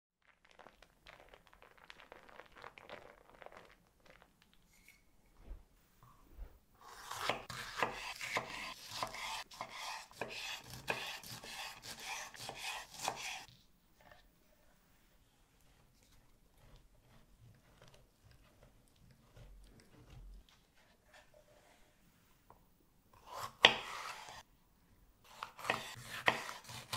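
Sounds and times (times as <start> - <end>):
knife chopping on cutting board: 7.0 - 13.4, 23.2 - 24.4, 25.3 - 26.9.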